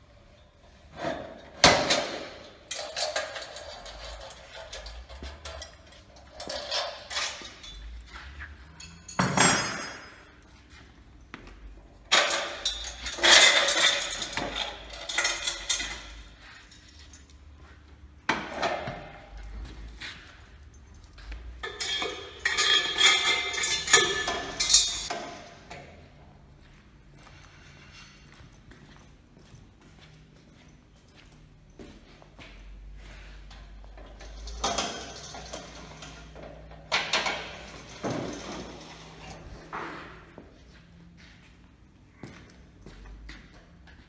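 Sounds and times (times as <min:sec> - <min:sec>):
metal rails clattering and ringing: 0:01.0 - 0:10.8, 0:11.9 - 0:17.4, 0:18.3 - 0:25.8, 0:33.5 - 0:40.1
steel parts knocking and clinking: 0:01.6 - 0:10.6, 0:12.0 - 0:17.3, 0:20.6 - 0:25.8, 0:33.5 - 0:39.6.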